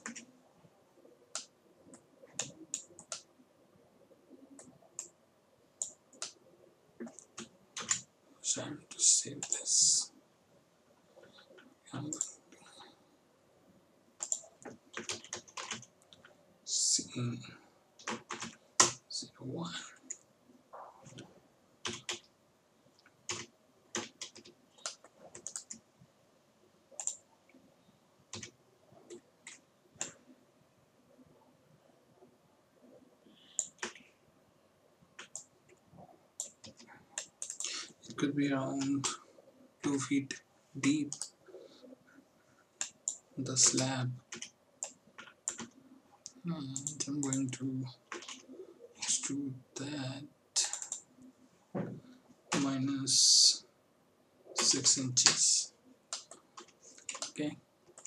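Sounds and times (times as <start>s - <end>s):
mouse and keyboard clicks: 14.2s - 16.3s, 27.0s - 27.2s, 33.5s - 34.1s, 42.8s - 47.5s.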